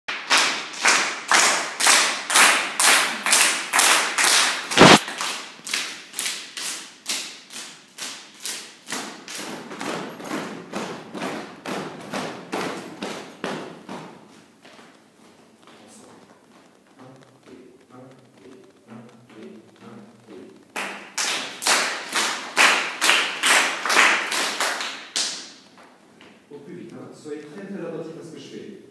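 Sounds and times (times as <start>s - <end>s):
group clapping in a steady beat: 0.1s - 14.3s, 17.8s - 26.3s.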